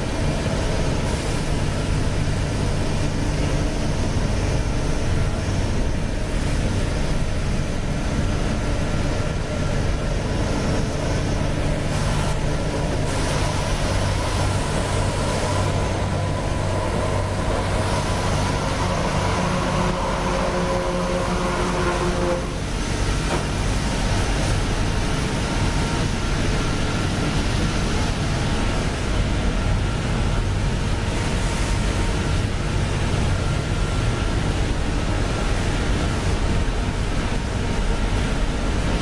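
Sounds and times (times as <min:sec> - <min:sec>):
machinery roaring: 0:11.6 - 0:24.8.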